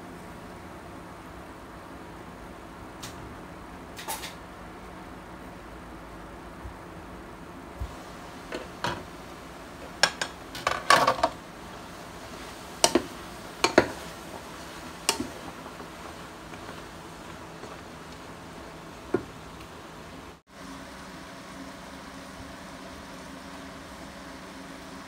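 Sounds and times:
kitchenware clinking: 0:10.0 - 0:11.4, 0:12.8 - 0:14.1.

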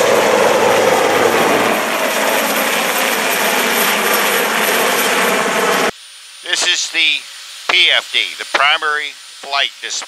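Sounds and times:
helicopter flying overhead: 0:00.0 - 0:05.9.

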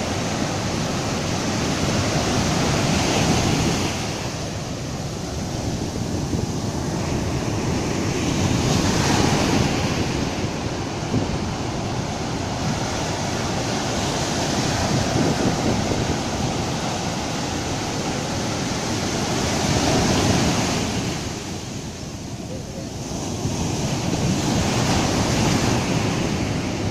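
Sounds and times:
waves breaking on sand: 0:00.0 - 0:26.9.

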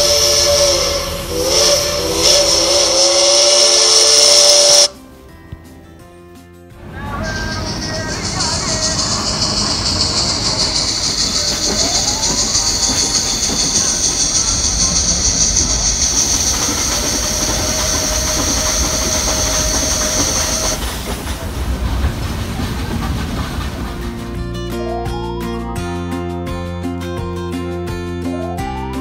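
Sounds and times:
loud steady high hiss: 0:00.0 - 0:04.9, 0:07.4 - 0:22.9
steam train running on track: 0:00.0 - 0:05.0, 0:06.8 - 0:25.2.

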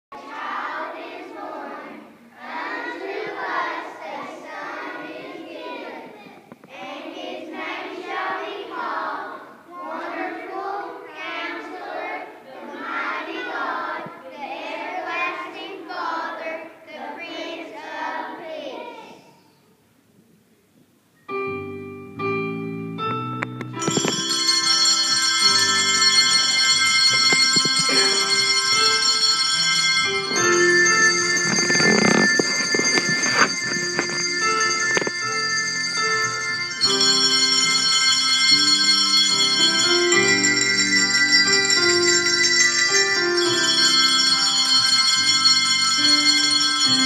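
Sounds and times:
children's choir singing: 0:00.2 - 0:19.3, 0:24.1 - 0:35.7
handbells ringing: 0:23.8 - 0:47.0.

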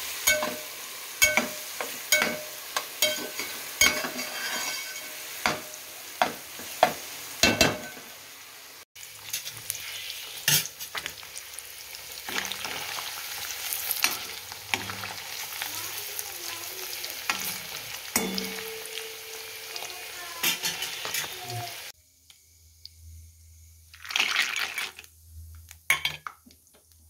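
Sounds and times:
paneer sizzling in oil: 0:00.0 - 0:27.0
metal spatula scraping pot: 0:00.2 - 0:05.6, 0:17.3 - 0:21.8
metal spoon scraping pan: 0:00.2 - 0:05.7, 0:17.2 - 0:21.6.

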